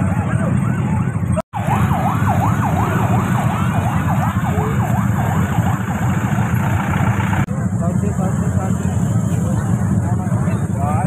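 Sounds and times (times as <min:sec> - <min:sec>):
electronic siren yelping: 0:00.0 - 0:07.5.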